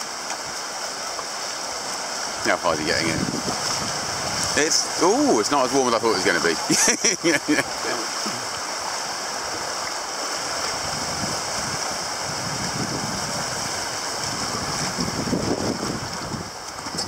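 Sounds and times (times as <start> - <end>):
small waves breaking on beach: 0.0 - 17.0.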